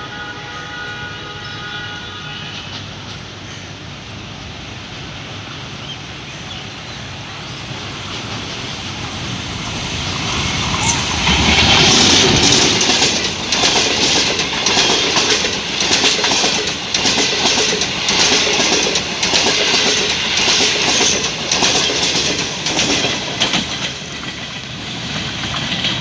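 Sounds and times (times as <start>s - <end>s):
train coaches rolling past: 0.0s - 26.0s
wheels clattering over rail joints: 10.3s - 26.0s.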